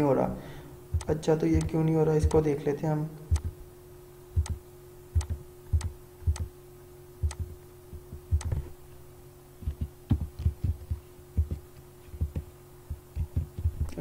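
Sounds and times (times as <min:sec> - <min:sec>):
faint steady hum: 0:00.0 - 0:14.0
keyboard keystrokes: 0:03.3 - 0:03.5, 0:08.4 - 0:08.6
mouse clicks: 0:03.3 - 0:03.5, 0:04.4 - 0:04.6, 0:05.2 - 0:06.5, 0:08.4 - 0:08.6.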